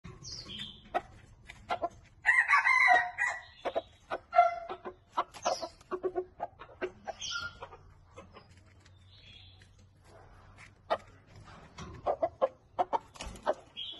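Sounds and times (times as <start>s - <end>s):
chicken clucking: 0.1s - 13.9s
rooster crowing: 2.2s - 3.4s.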